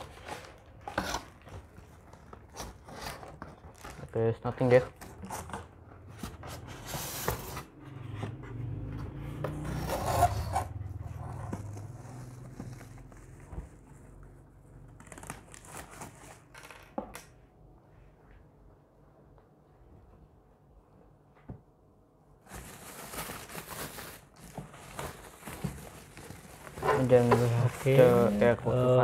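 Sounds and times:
plastic bag rustling: 10.2 - 16.7, 22.4 - 29.0.

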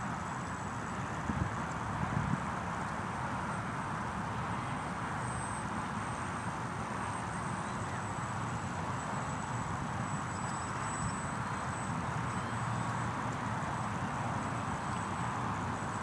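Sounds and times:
model airplane engine drone: 0.0 - 16.0
wind on microphone: 1.2 - 2.5.

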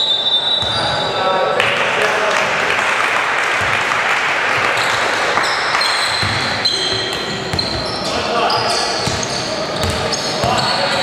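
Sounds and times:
gym hall noise: 0.0 - 11.0
basketball bouncing on hardwood: 6.2 - 7.9, 9.8 - 10.6.

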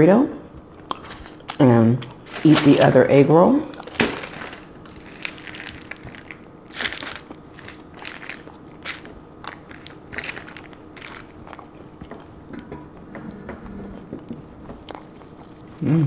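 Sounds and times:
person crunching fried food: 3.7 - 12.0.

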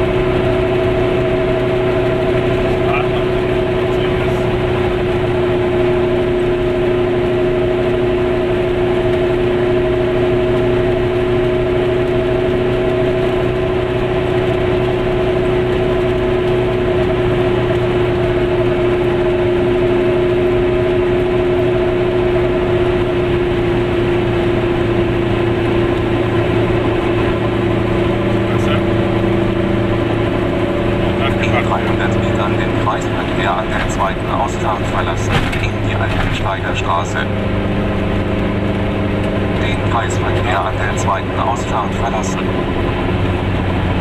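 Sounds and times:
car engine drone: 0.0 - 44.0
tyre and road noise: 22.2 - 44.0.

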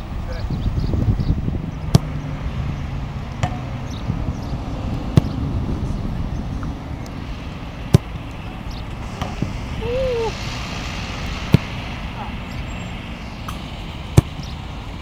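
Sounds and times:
steady low rumble: 0.0 - 15.0
football kicks thudding: 5.1 - 5.4, 7.9 - 8.1, 14.1 - 14.4.

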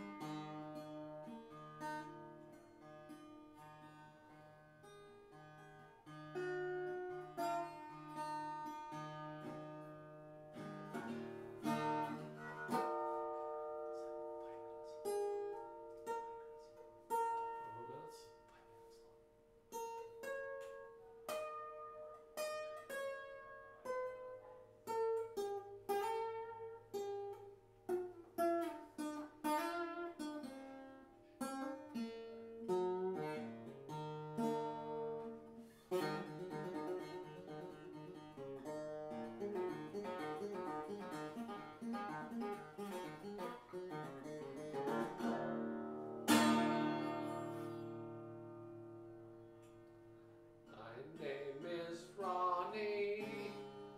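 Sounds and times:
acoustic guitar picking: 0.0 - 53.9
loud guitar strum: 35.9 - 49.2.

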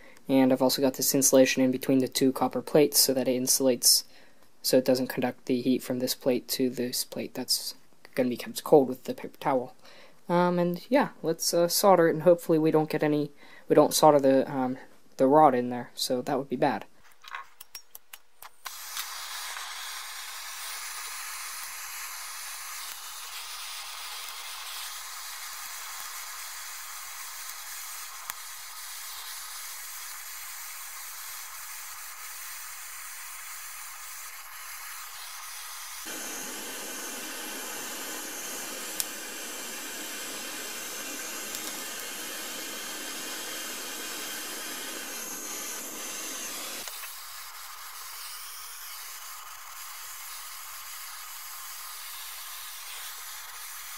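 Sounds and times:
gas torch flame hissing: 18.7 - 50.5
clicks: 36.1 - 42.6.

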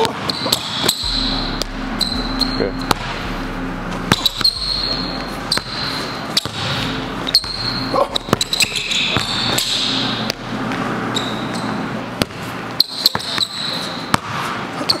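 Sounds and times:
sneakers squeaking: 0.0 - 1.2, 5.5 - 15.0.

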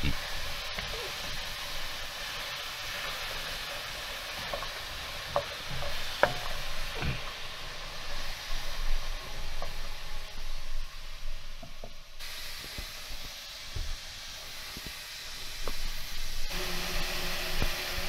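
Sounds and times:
vegetables sizzling in a frying pan: 0.0 - 18.0
wooden spoon knocking a pan: 4.3 - 7.3.

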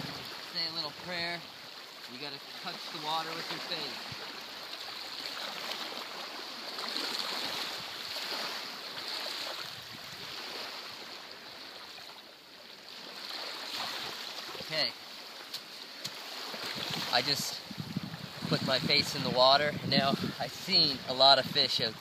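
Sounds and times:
small waves washing on sand: 0.0 - 22.0.

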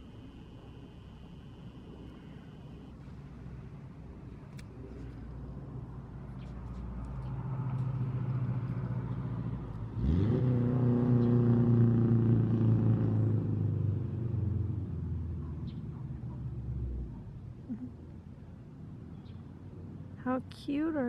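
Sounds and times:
vehicle engine revving: 8.0 - 15.8.

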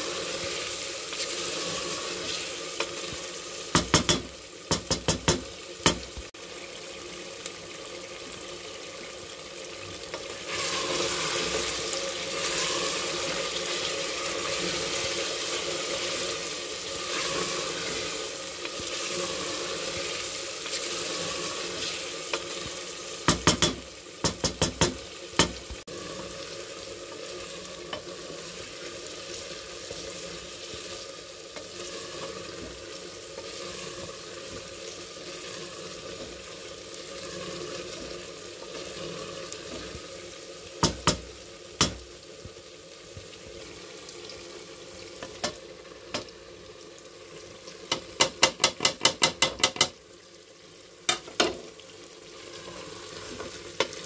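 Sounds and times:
meat sizzling in a pot: 0.0 - 54.0
wooden spoon knocking on pot: 3.7 - 6.1, 23.3 - 25.6, 47.9 - 50.0.

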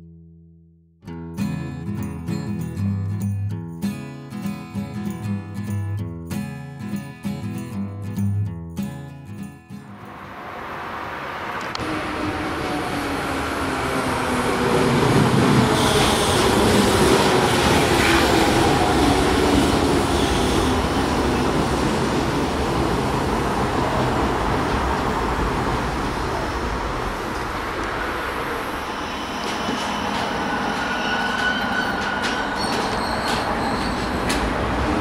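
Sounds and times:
train rumble: 9.9 - 35.0
wheel or brake squeal: 20.1 - 20.8, 28.8 - 34.4.

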